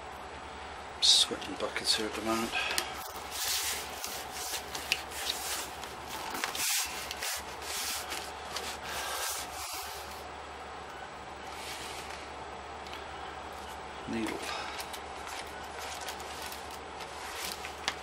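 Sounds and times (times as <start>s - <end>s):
cardboard rubbing and scraping: 3.2s - 10.2s, 15.2s - 18.0s.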